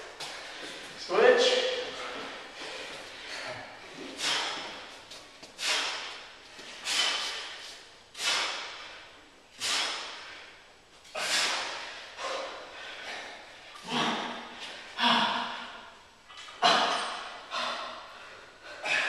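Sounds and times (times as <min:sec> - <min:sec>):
person breathing out forcefully: 0:01.8 - 0:16.0.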